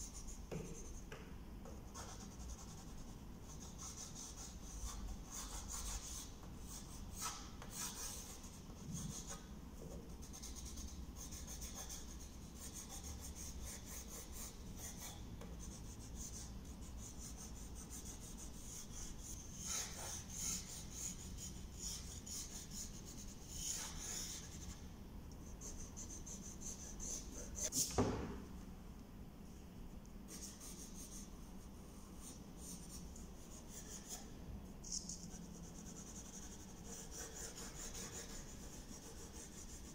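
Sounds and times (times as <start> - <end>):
pencil scratching on paper: 1.9 - 9.4, 10.1 - 24.8, 34.9 - 39.9.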